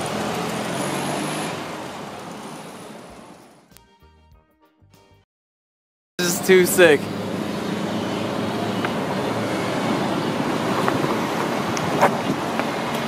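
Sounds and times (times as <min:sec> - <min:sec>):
small wheels rolling on asphalt: 0:00.0 - 0:03.7, 0:07.2 - 0:13.0
wind noise on microphone: 0:09.6 - 0:13.0.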